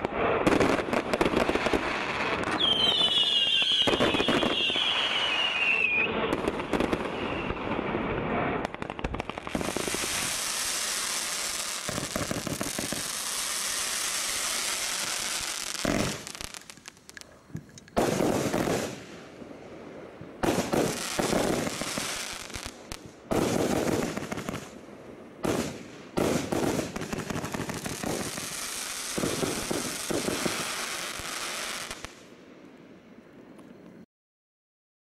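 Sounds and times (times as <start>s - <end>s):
dense crackle of bursting stars: 0.0s - 3.2s, 3.8s - 17.4s, 18.0s - 32.3s
firework reports: 0.0s - 19.6s.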